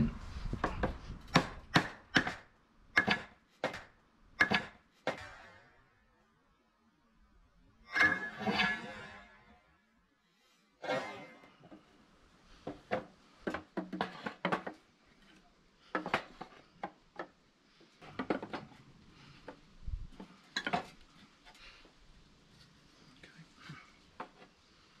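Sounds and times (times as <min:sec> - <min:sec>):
wooden knocks and clatters: 0:12.6 - 0:17.4, 0:18.0 - 0:18.8.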